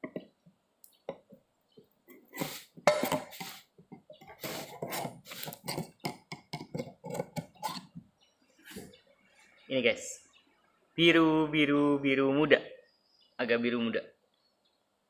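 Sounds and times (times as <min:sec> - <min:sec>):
screwdriver prying metal can lid: 0:02.9 - 0:03.6, 0:04.4 - 0:08.0.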